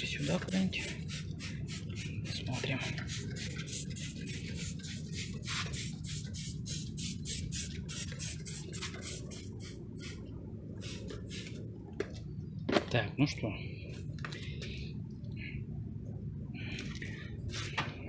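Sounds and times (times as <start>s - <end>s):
steady low hum: 0.0s - 18.0s
spray bottle squirting: 0.2s - 10.2s, 10.8s - 11.6s.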